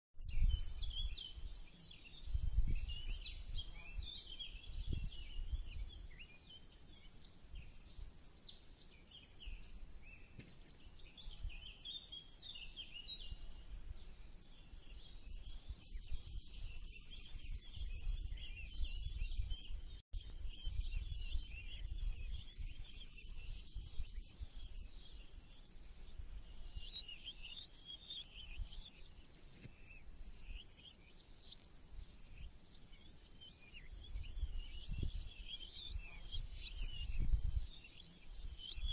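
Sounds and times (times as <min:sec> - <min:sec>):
wind gusts on microphone: 0:00.2 - 0:06.8, 0:07.5 - 0:08.5, 0:12.5 - 0:27.6, 0:33.7 - 0:38.9
small birds chirping and singing: 0:00.2 - 0:38.9.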